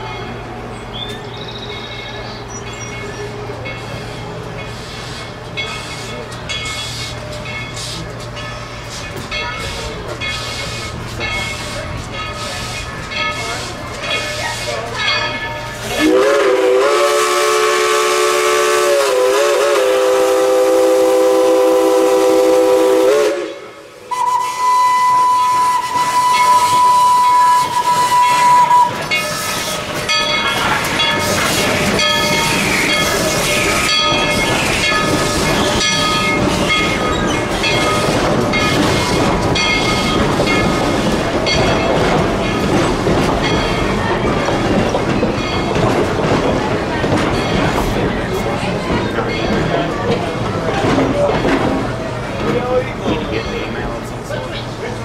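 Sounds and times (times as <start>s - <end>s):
train coaches rolling: 0.0s - 55.0s
steam locomotive whistle: 16.0s - 29.9s.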